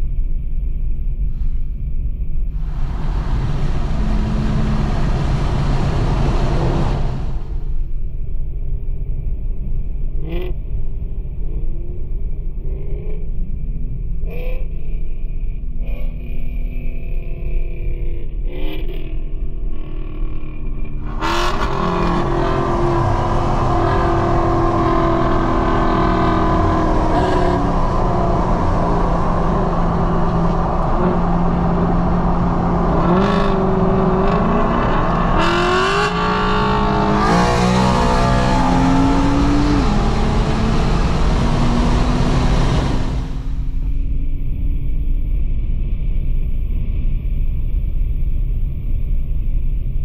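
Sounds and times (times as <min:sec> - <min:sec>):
car engine accelerating hard: 0:02.6 - 0:07.8, 0:20.9 - 0:44.0.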